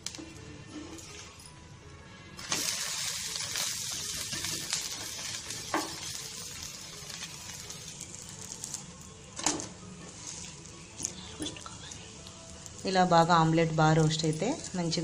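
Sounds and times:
dosa sizzling on a hot griddle: 2.4 - 14.2.

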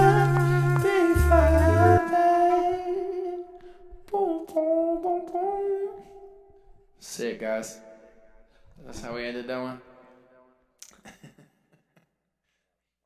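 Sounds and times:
song with bass: 0.0 - 2.9.

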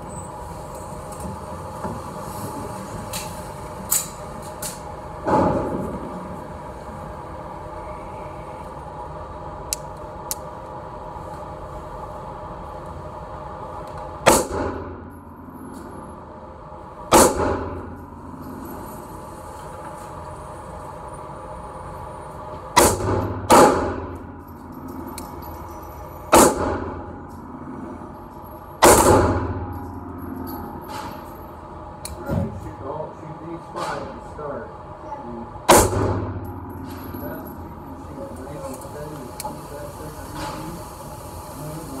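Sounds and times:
ventilation hum: 0.0 - 42.0
gunshots echoing indoors: 14.2 - 15.6, 17.1 - 18.5, 22.7 - 25.2, 26.3 - 27.6, 28.8 - 31.1, 35.6 - 37.2.

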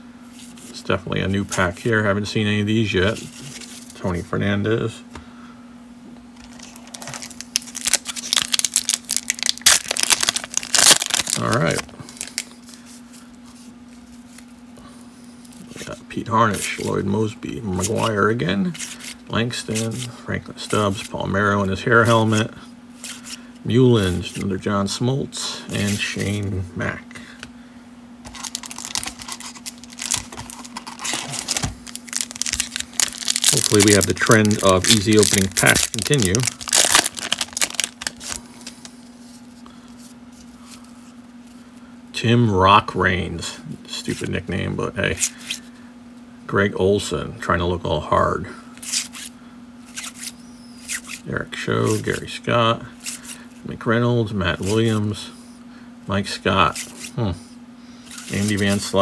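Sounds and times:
faint steady hum: 0.0 - 59.0
foil card packs rustling and clicking: 6.4 - 12.9, 28.3 - 39.0
wax wrapper crinkling: 6.4 - 13.2, 28.3 - 39.4
hand rummaging in cardboard box: 28.3 - 38.4.

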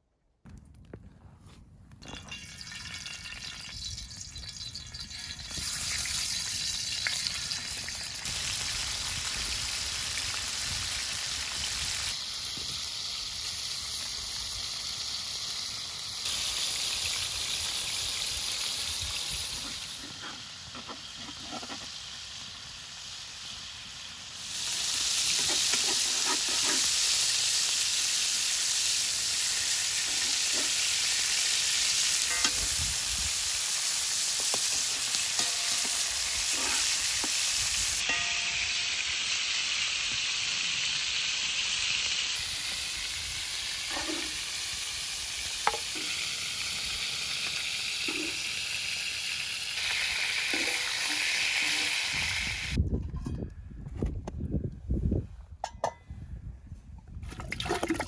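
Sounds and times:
meat sizzling in hot oil: 2.5 - 52.8
metal spatula scraping a pan: 19.9 - 22.0, 25.1 - 27.2, 29.7 - 31.2, 32.2 - 32.8, 34.5 - 39.0, 43.9 - 44.4, 49.9 - 52.2.

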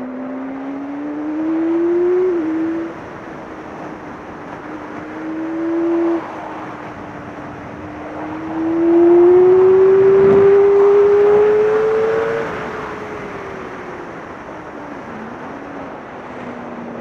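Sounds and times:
motorcycle engine accelerating: 0.0 - 13.0
wind rushing: 0.8 - 17.0.

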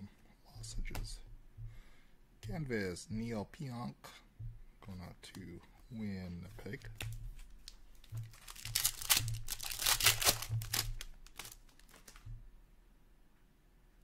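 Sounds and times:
wrapper tearing and crumpling: 8.1 - 12.2.

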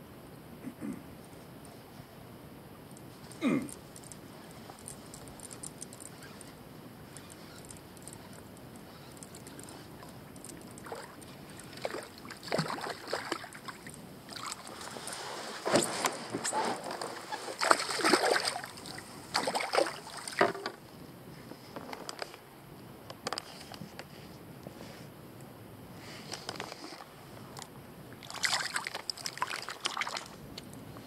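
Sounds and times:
fish splashing at water surface: 28.2 - 30.4.

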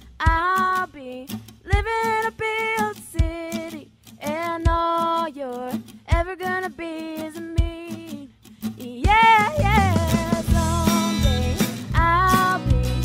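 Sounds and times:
woman singing with vibrato: 0.2 - 13.0
plucked string accompaniment: 5.5 - 13.0.

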